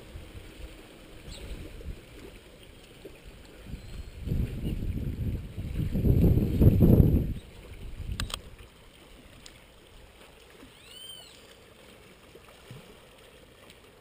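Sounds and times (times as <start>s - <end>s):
wind rush: 3.7s - 8.4s
quick clicks: 8.2s - 8.5s
short bird chirp: 10.8s - 11.4s.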